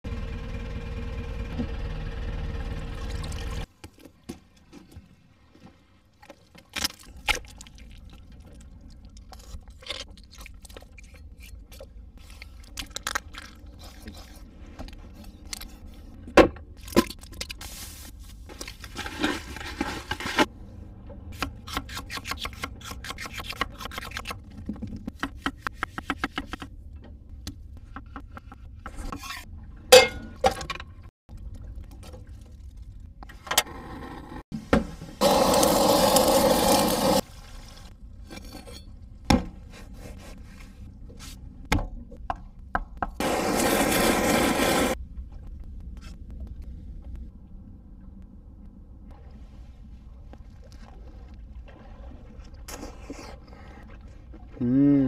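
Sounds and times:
steady hum with low rumble: 45.0 - 51.6.

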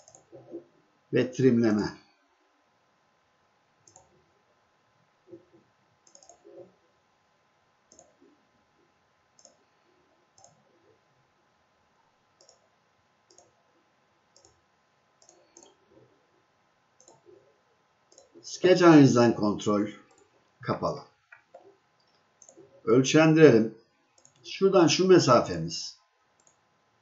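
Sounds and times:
faint computer mouse clicks: 0.0 - 0.5, 3.8 - 4.1, 6.0 - 6.7, 7.9 - 8.2, 9.4 - 9.6, 10.4 - 10.6, 12.4 - 12.7, 13.3 - 13.6, 14.4 - 14.6, 15.2 - 15.8, 17.0 - 17.3, 18.1 - 18.4, 21.3 - 22.7, 24.2 - 24.4, 26.4 - 26.6.

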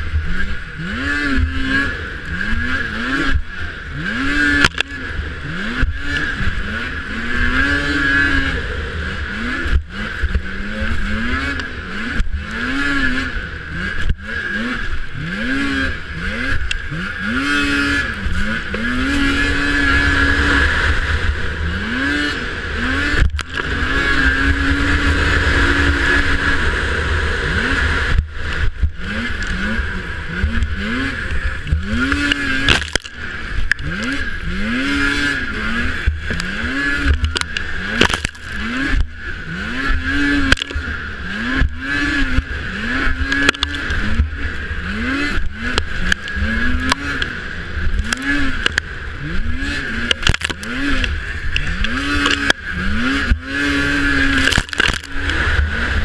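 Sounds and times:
snowmobile engine revving: 0.0 - 56.0.

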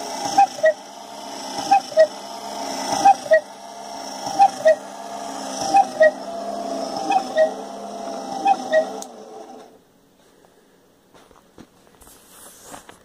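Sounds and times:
cuckoo clock calling: 0.0 - 9.7
mechanical whir: 0.0 - 9.8.

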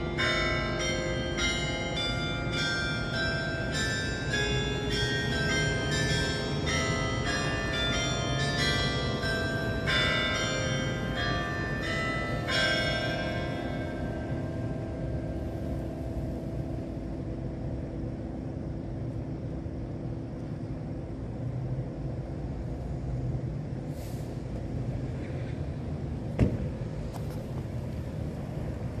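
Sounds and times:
carillon bells ringing: 0.0 - 17.0
distant traffic rumble: 0.0 - 29.0
brief hiss: 23.9 - 24.4.

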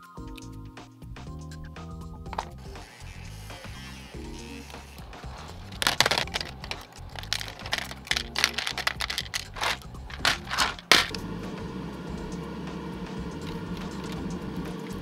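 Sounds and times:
background music: 0.0 - 15.0
plastic parts clattering into tub: 2.3 - 2.6, 5.2 - 11.2.

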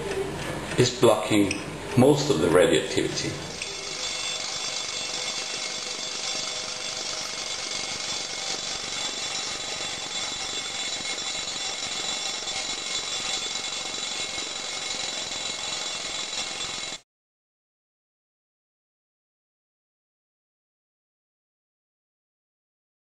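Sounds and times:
mechanical alarm clock ringing: 3.5 - 17.0.

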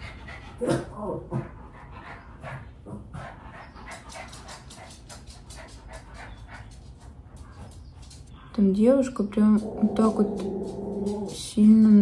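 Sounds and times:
dog panting: 0.0 - 8.7.

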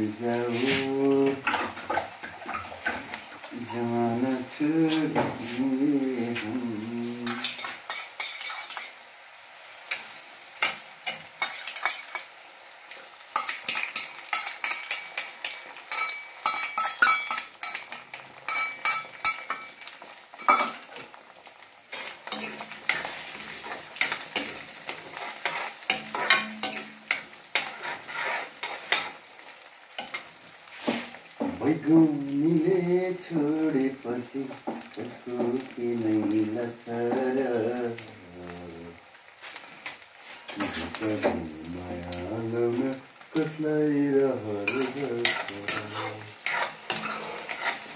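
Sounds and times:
onion and egg sizzling: 0.0 - 47.9
spatula scraping metal pan: 7.2 - 9.0, 10.6 - 12.3, 13.4 - 19.7, 21.9 - 29.2, 44.6 - 47.9.

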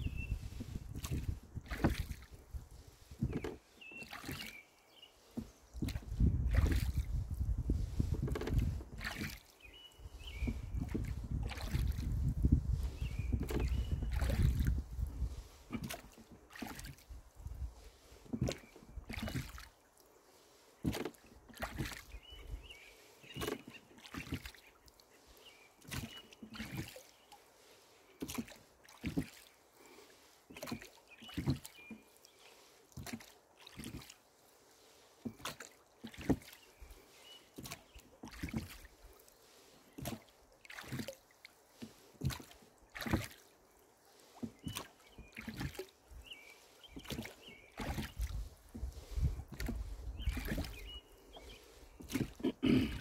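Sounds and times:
wind buffeting microphone: 0.0 - 3.4, 5.8 - 9.1, 10.1 - 15.6, 47.9 - 51.0
oars knocking and splashing: 0.0 - 53.0.

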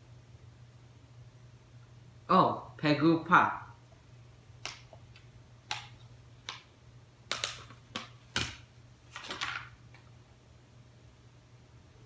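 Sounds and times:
plastic packaging crinkling: 7.3 - 10.0.

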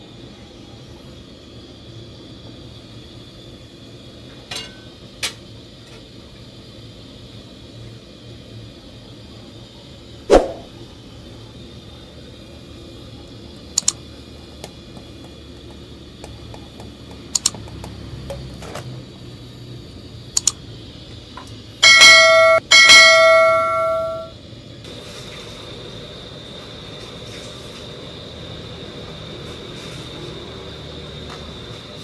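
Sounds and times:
swoosh: 10.3 - 10.7
mouse clicks: 20.4 - 20.6
notification bell dinging: 21.8 - 24.3.

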